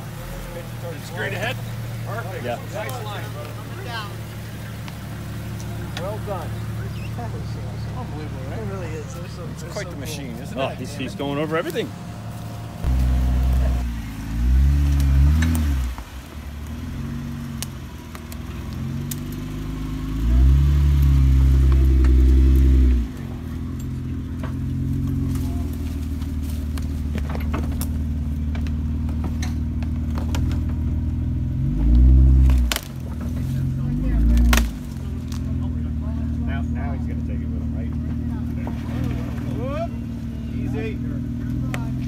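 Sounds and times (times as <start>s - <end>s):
engine revving: 0.0s - 42.0s.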